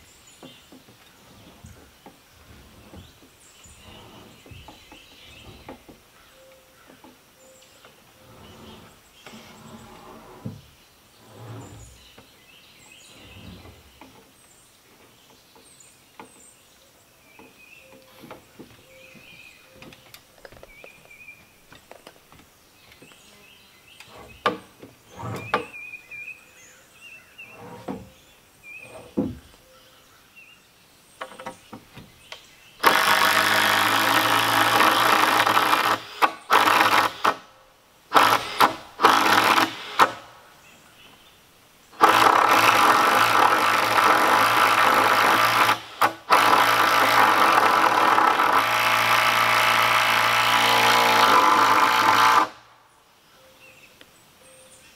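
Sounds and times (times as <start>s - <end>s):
birds chirping: 0.0s - 48.6s, 51.1s - 54.9s
wood knocks and scrapes: 0.4s - 6.2s, 7.9s - 12.4s, 13.0s - 15.4s, 17.4s - 23.2s, 24.0s - 25.8s, 27.4s - 28.2s, 28.8s - 29.6s, 31.2s - 33.2s.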